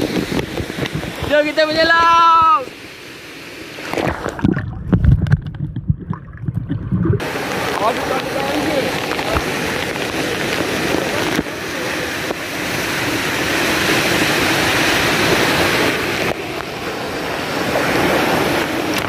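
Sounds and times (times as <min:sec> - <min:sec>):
waterfall rushing: 0:00.0 - 0:04.7, 0:06.8 - 0:19.0.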